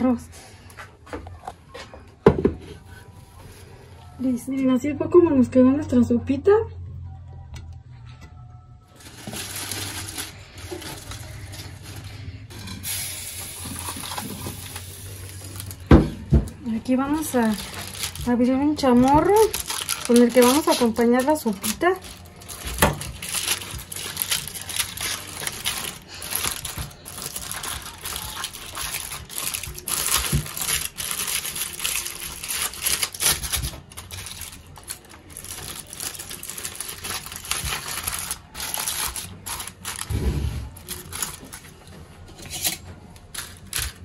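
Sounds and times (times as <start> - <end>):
aluminium foil crinkling: 8.9 - 15.9, 16.6 - 44.0.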